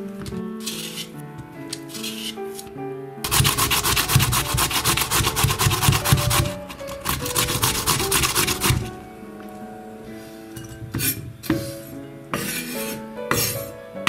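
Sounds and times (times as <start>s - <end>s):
potato grating on metal grater: 0.6s - 1.1s, 1.8s - 2.6s, 3.3s - 8.9s.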